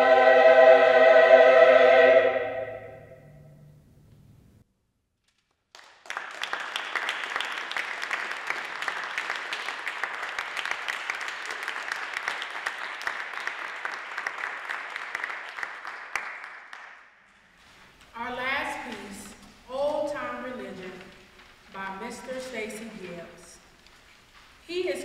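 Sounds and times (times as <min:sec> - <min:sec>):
small audience applauding: 0:05.3 - 0:17.4.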